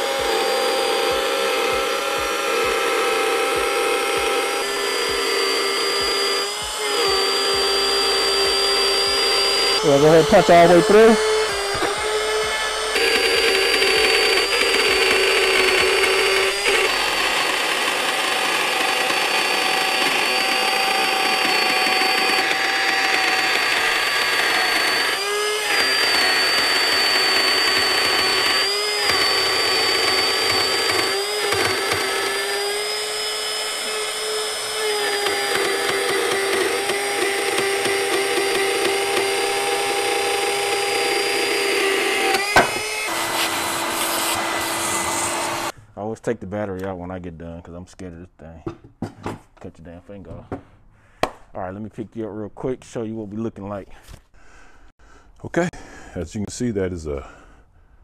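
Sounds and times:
trim router cutting: 0:00.0 - 0:45.8.

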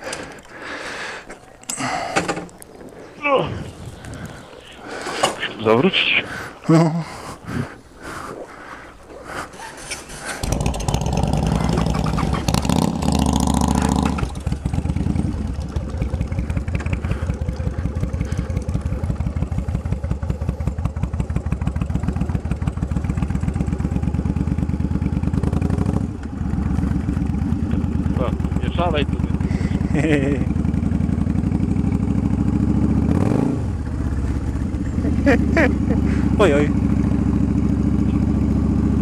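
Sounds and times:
motorcycle engine revving: 0:10.4 - 0:39.0.

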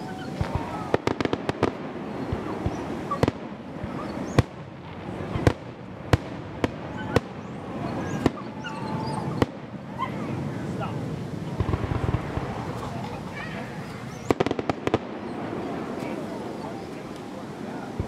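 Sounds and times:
firework cracks: 0:00.0 - 0:18.0
firework shells bursting: 0:11.6 - 0:16.2.

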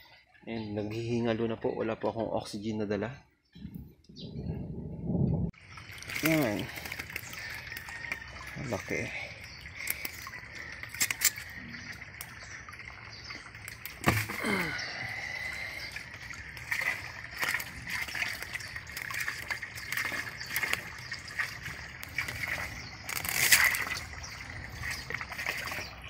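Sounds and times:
water sloshing and splashing: 0:05.5 - 0:26.0
fish slapping water: 0:05.6 - 0:26.0.

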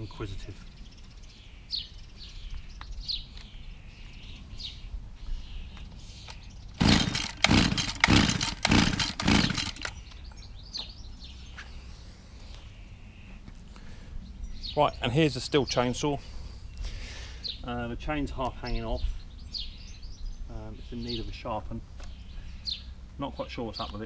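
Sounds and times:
strimmer engine pull-started: 0:06.8 - 0:10.0.

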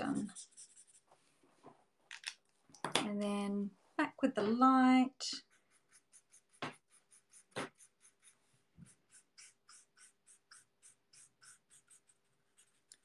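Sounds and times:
marker scratching on paper: 0:00.0 - 0:01.1, 0:05.2 - 0:13.0.

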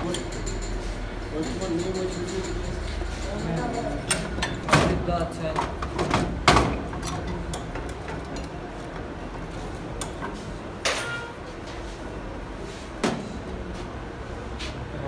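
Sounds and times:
metal tools knocking and clinking: 0:00.0 - 0:05.0.

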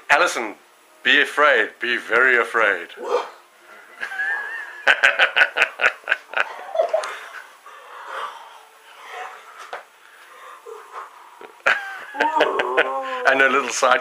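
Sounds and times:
person laughing: 0:04.0 - 0:07.4, 0:11.5 - 0:13.4.

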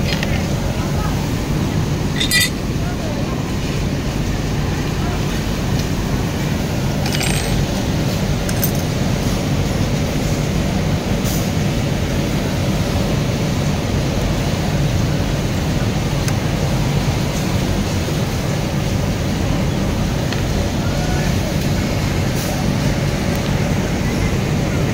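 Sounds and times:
low machinery and fan rumble: 0:00.0 - 0:24.9
metal parts clicking: 0:02.2 - 0:02.6, 0:07.0 - 0:07.6, 0:08.5 - 0:08.9.

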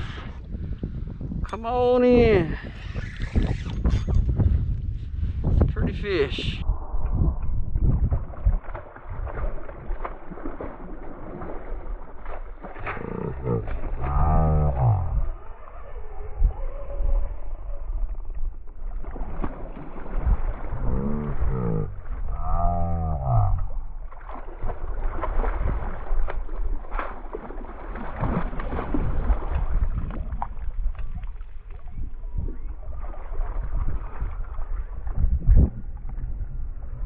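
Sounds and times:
low moaning tones: 0:12.8 - 0:18.3, 0:20.7 - 0:23.8.

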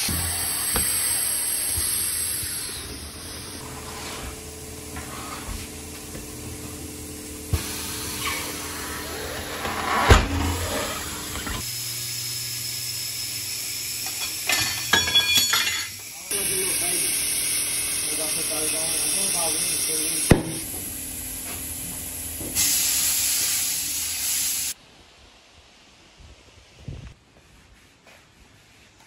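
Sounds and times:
air hissing: 0:00.0 - 0:05.7, 0:07.5 - 0:21.7, 0:22.4 - 0:24.8.

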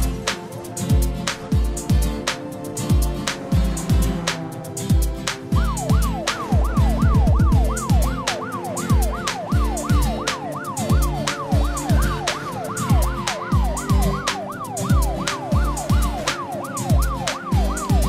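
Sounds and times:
background music with kick drum: 0:00.0 - 0:18.0
cartoon police siren wail: 0:05.4 - 0:18.0.

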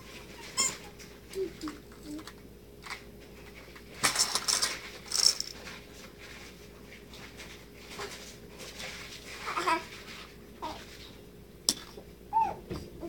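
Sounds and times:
plastic toys clattering: 0:01.3 - 0:05.8
baby vocalizing: 0:01.4 - 0:02.3.

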